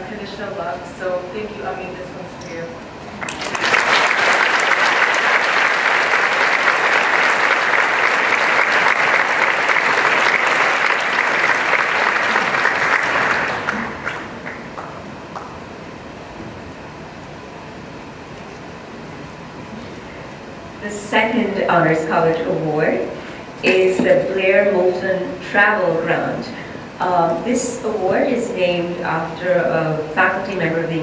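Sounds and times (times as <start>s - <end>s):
audience applauding: 3.2s - 15.6s.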